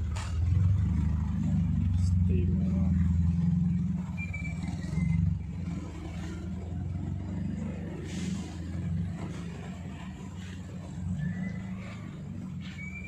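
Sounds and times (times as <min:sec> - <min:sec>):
car engine pulling away: 0:00.0 - 0:13.0.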